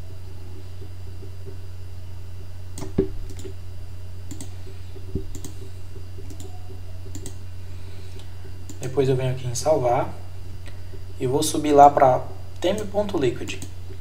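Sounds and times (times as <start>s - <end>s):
low hum: 0.0s - 14.0s
mouse and keyboard clicks: 4.3s - 4.5s, 5.1s - 7.4s.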